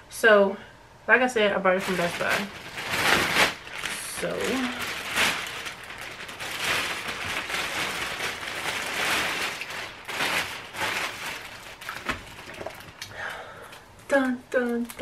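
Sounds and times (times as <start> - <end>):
plastic bag crinkling: 1.7 - 13.1.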